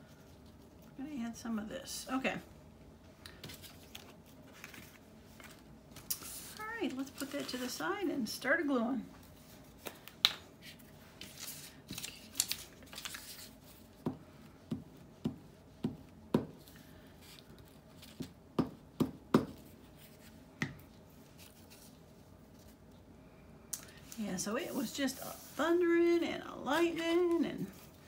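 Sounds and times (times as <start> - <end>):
paper rustling: 3.3 - 7.8, 9.2 - 13.9.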